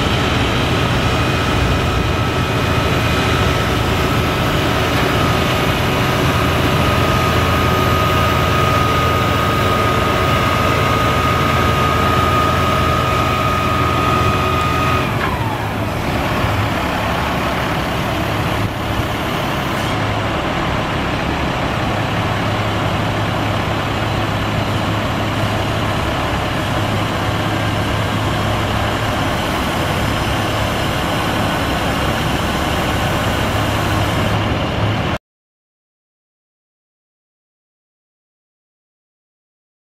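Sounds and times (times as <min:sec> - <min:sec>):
hydraulic whine: 0:00.0 - 0:35.1
diesel engine running: 0:00.0 - 0:35.2.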